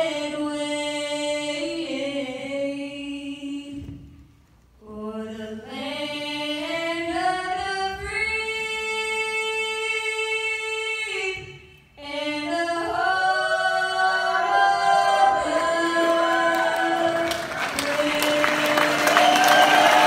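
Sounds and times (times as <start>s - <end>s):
woman singing a cappella: 0.0s - 4.2s, 4.8s - 20.0s
applause and cheering: 15.4s - 20.0s.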